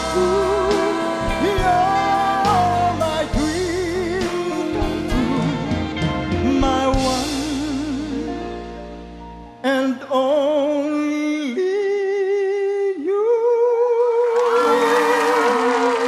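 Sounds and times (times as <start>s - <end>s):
band chord: 0.0s - 9.6s
audience applause: 14.3s - 16.0s.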